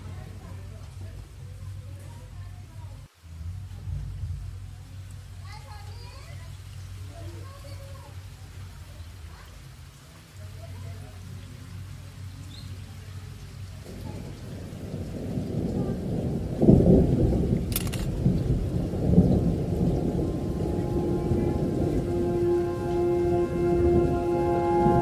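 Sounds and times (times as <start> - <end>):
rolling thunder: 0.0 - 7.4, 13.6 - 25.0
rain: 0.0 - 25.0
thunder crack: 13.8 - 25.0
sustained music notes: 19.4 - 25.0.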